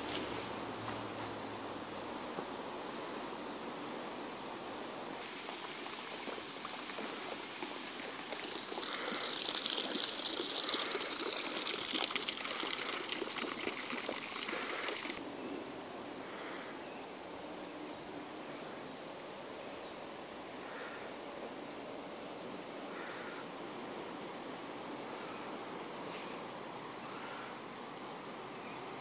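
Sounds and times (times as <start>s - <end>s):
water trickling in a canal: 4.7s - 15.2s.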